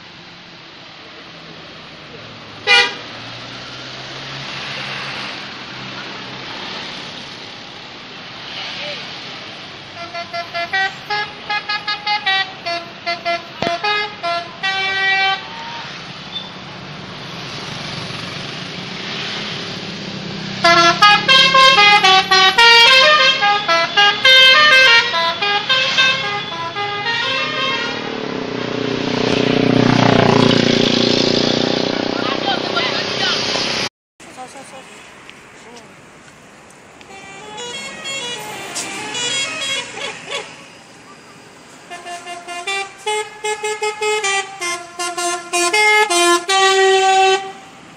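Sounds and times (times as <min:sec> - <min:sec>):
passing vehicle engine: 0:01.1 - 0:47.9
musical vehicle horns playing tunes: 0:02.6 - 0:03.0, 0:09.9 - 0:15.9, 0:20.6 - 0:28.2, 0:37.1 - 0:40.6, 0:41.9 - 0:47.8.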